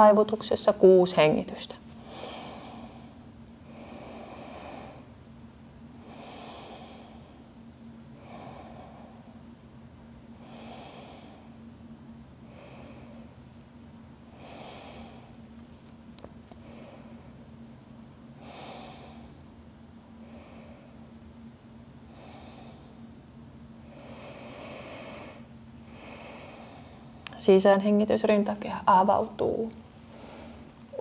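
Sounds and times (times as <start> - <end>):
faint steady hum: 0.0 - 31.0
woman breathing deeply: 2.0 - 5.2, 6.0 - 7.6, 8.2 - 9.5, 10.3 - 11.7, 12.4 - 13.5, 14.3 - 15.4, 16.6 - 17.5, 18.4 - 19.5, 20.2 - 21.1, 22.1 - 23.1, 23.8 - 27.2, 30.0 - 31.0.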